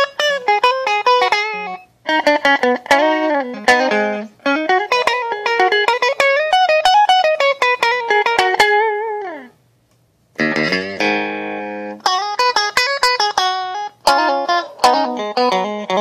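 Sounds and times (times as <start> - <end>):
electric guitar lead line: 0.0 - 9.6, 10.4 - 16.0
guitar chord ringing: 0.0 - 9.6, 10.4 - 16.0.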